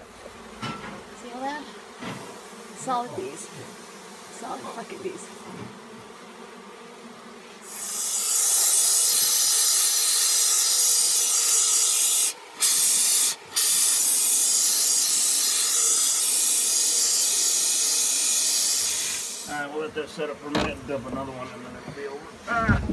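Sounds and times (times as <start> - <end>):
spray foam hissing from can: 7.6 - 19.5.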